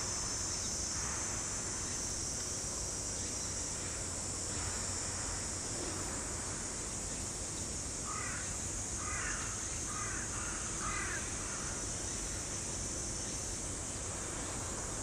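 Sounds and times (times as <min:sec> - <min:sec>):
background hiss: 0:00.0 - 0:15.0
crow cawing: 0:08.1 - 0:11.8.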